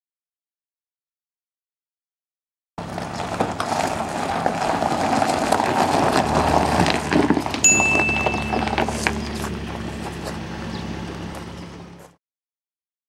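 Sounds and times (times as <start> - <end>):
footsteps crunching on gravel: 2.8 - 12.2
steady high tone: 7.6 - 9.1.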